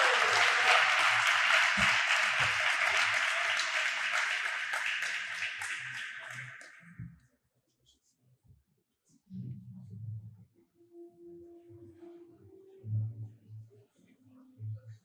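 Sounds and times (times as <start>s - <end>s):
audience applauding: 0.0s - 7.0s.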